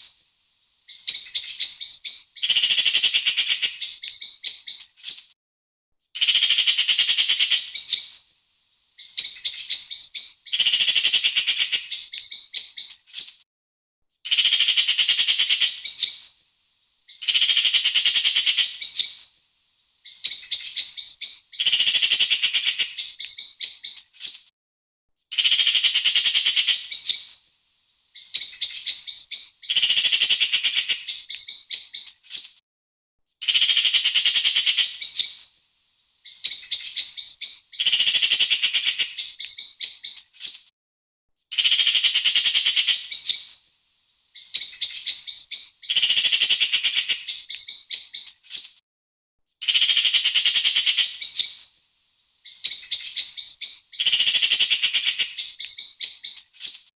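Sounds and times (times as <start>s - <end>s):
magpie chattering: 6.2s - 8.1s, 9.0s - 13.3s, 14.3s - 16.2s, 17.1s - 19.2s, 20.1s - 24.4s, 25.4s - 27.4s, 33.4s - 35.5s, 41.6s - 43.6s, 44.4s - 48.7s, 49.6s - 51.7s, 52.5s - 56.8s.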